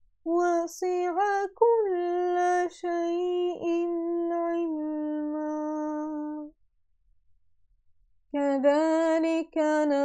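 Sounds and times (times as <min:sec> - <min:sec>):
woman chanting recitation: 0:00.3 - 0:06.5, 0:08.4 - 0:10.0.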